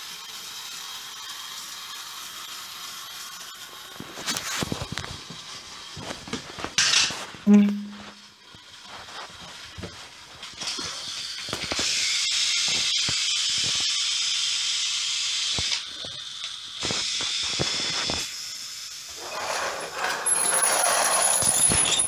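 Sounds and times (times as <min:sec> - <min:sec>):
steady hiss: 0:08.2 - 0:19.6.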